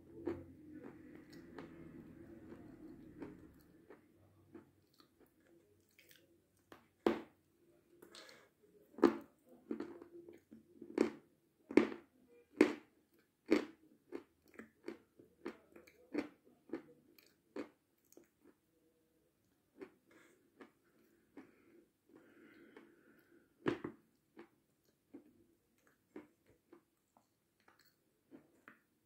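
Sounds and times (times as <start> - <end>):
crunchy sweet being chewed: 0.2 - 6.7, 9.0 - 18.6, 24.2 - 28.8.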